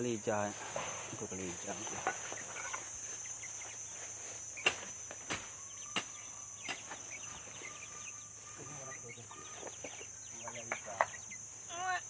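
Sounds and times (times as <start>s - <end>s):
insect drone: 0.0s - 12.0s
faint bird chirps: 1.7s - 12.0s.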